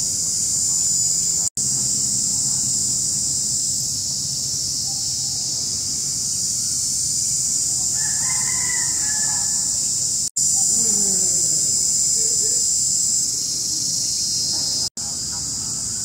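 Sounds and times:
high-pitched insect drone: 0.0 - 16.0
rooster crowing: 7.8 - 9.9.

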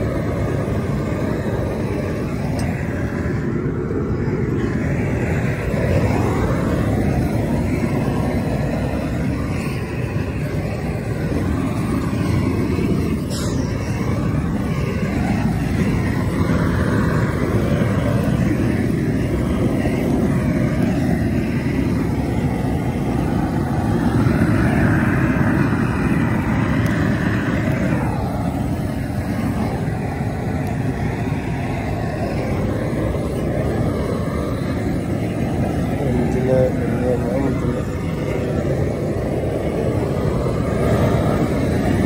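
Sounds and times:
blowtorch flame rushing: 0.0 - 42.0.

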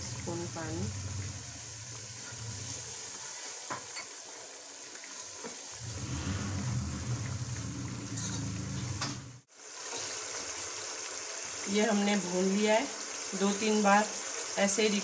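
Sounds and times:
spice paste sizzling in a pot: 0.0 - 15.0
low hum: 5.8 - 9.5.

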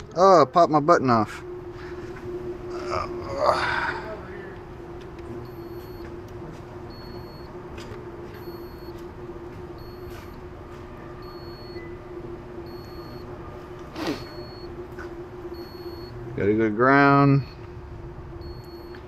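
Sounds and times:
steady hum: 0.0 - 19.0
short high beep: 14.2 - 14.7.

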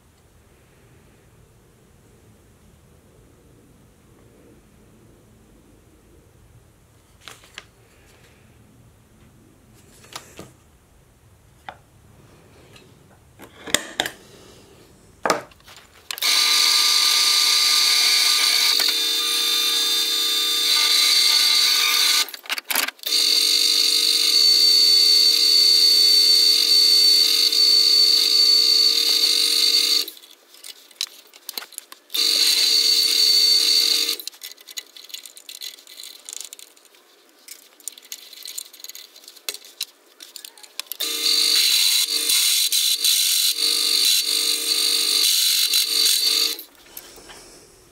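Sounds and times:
drill press whining: 16.2 - 22.3, 23.0 - 30.1, 32.1 - 34.2, 41.0 - 46.7.

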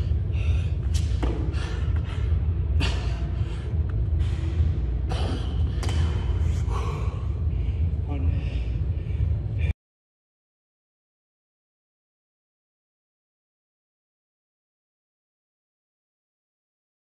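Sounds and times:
sharp breaths: 0.0 - 9.7
low background hum: 0.0 - 9.8.

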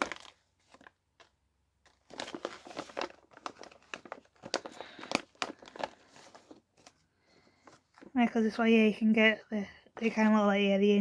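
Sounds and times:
plastic packet crinkling: 0.0 - 7.0.

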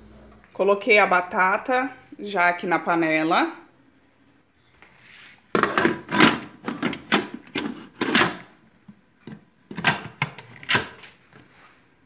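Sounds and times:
metal lid scraping and knocking: 5.6 - 8.5.

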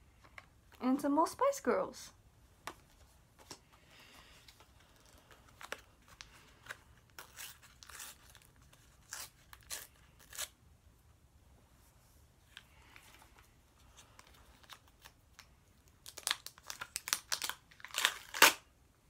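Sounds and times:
paper stickers rustling and tearing: 4.5 - 10.6, 13.8 - 18.6.

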